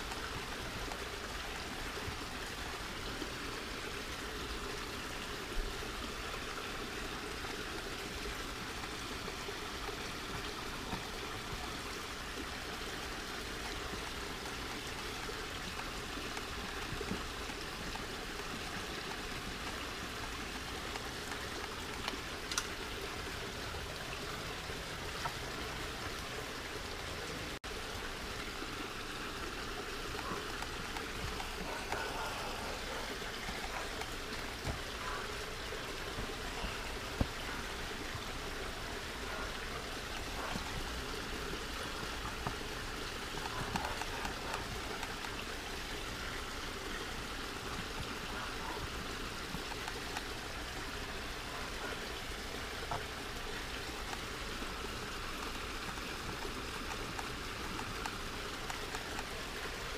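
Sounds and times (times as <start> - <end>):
running water trickling: 0.0 - 59.9
faint clicks: 20.8 - 22.8.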